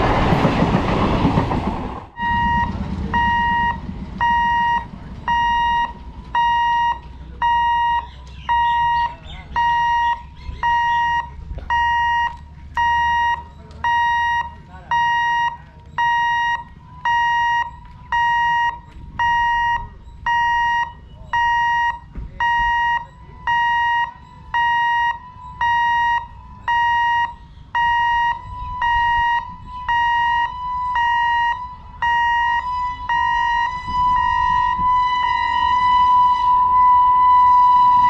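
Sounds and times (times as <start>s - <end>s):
low rumble of approaching train: 0.0s - 38.0s
level crossing warning beeps: 2.2s - 38.0s.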